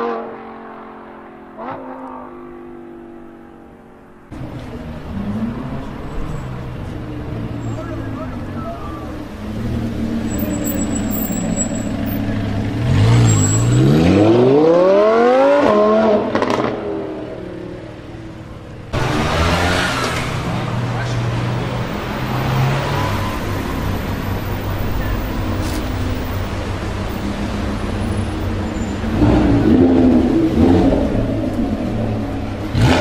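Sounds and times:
car engine accelerating hard: 9.5s - 17.2s, 29.0s - 33.0s.

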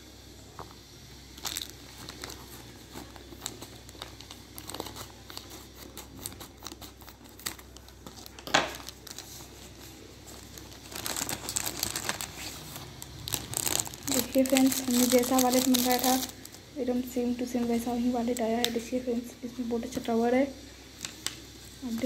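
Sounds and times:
plastic bag crinkling and tearing: 1.3s - 16.6s.

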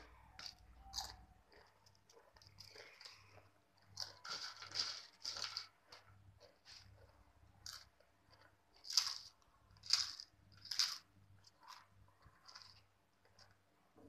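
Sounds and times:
potato chips crunching: 0.0s - 13.6s.

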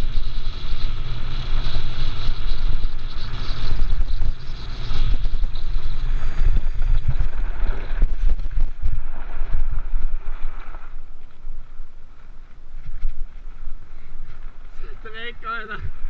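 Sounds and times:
wheels rolling on gravel: 0.0s - 16.0s
wind buffeting microphone: 0.0s - 16.0s.

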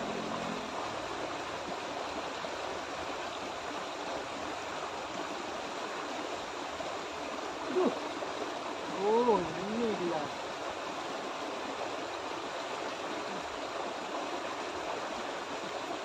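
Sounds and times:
river rushing over rocks: 0.0s - 16.0s.

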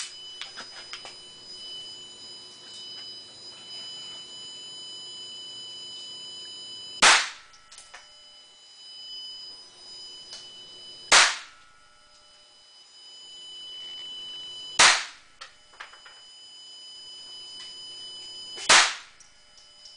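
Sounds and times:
pistol shots: 7.0s - 7.4s, 11.1s - 11.5s, 14.8s - 15.2s, 18.6s - 19.1s.

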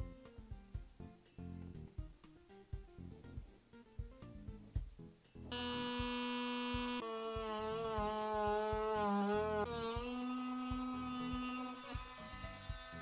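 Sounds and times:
rotary tool cutting plastic: 5.6s - 13.0s.

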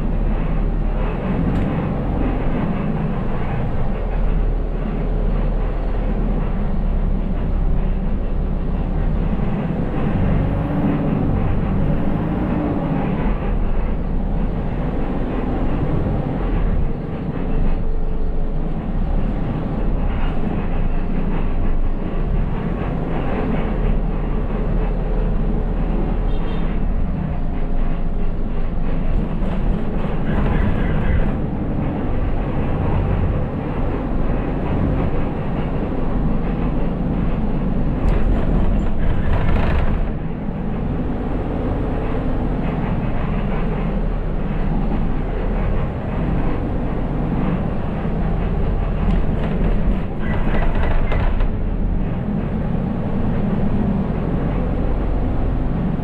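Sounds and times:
bus engine and road rumble: 0.0s - 56.0s
rattles: 47.4s - 52.1s.

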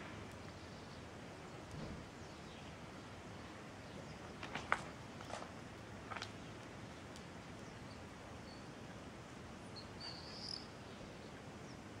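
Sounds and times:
steady outdoor hiss: 0.0s - 12.0s
small bird chirp: 9.6s - 11.8s.

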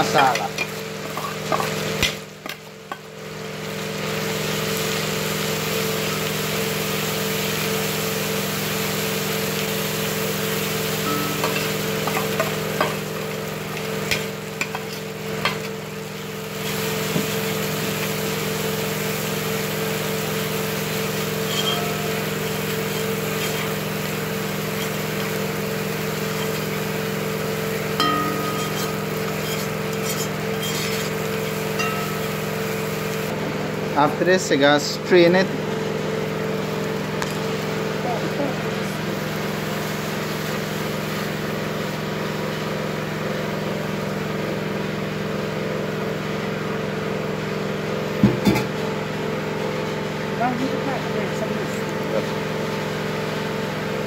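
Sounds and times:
food sizzling in a pan: 0.0s - 33.9s, 35.1s - 45.3s
metal spoon scraping pan: 21.4s - 24.0s, 28.0s - 32.4s
low hum: 28.0s - 30.1s.

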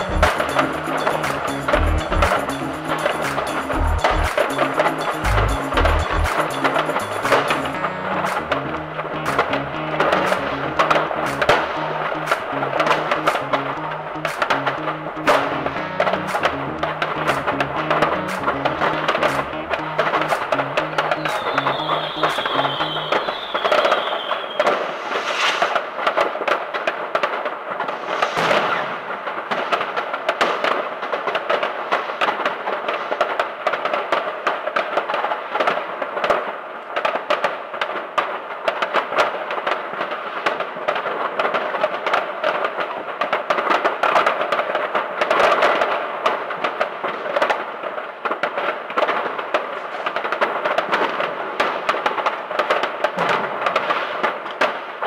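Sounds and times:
fireworks crackling and banging: 0.0s - 55.0s
heavy firework bangs: 21.2s - 55.0s.

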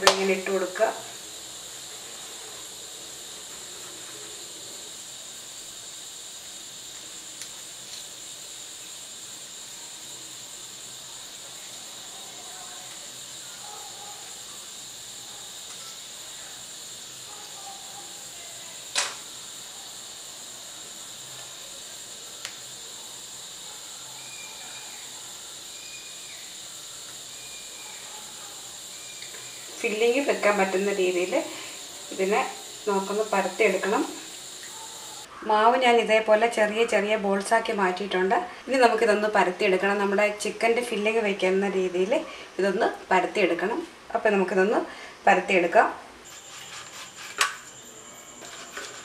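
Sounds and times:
high-pitched hiss: 0.0s - 49.0s.

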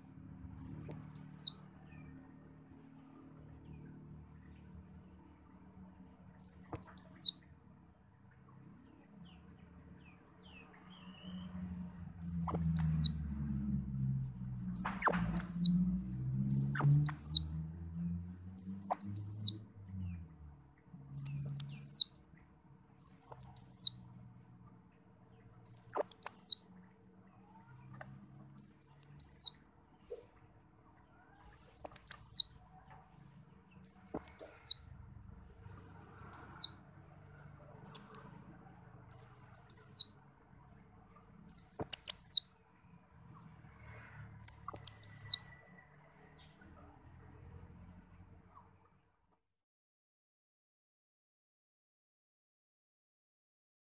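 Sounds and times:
faint low rumble: 10.0s - 21.8s.

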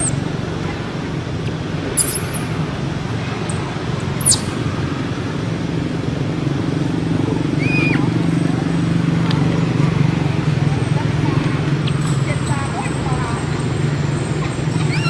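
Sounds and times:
baby monkey squeaking: 0.0s - 0.2s, 2.0s - 2.5s, 4.2s - 4.6s, 14.4s - 15.0s.

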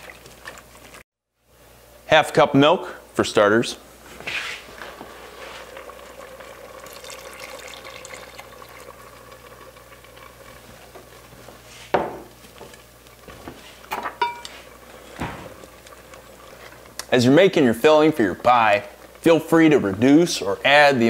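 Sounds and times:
stirring liquid: 0.0s - 1.0s, 12.6s - 20.3s
milk pouring into a pot: 4.6s - 11.2s.

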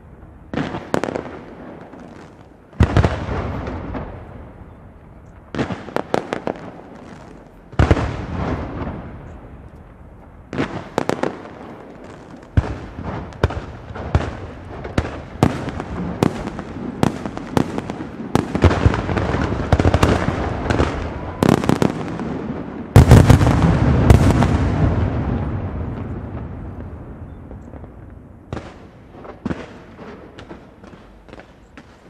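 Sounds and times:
fireworks shells bursting with bangs: 10.5s - 32.0s.

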